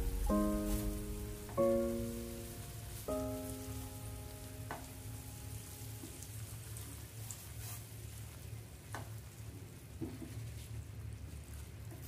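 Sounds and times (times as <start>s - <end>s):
syrup bubbling and sizzling in a pan: 3.0s - 12.0s.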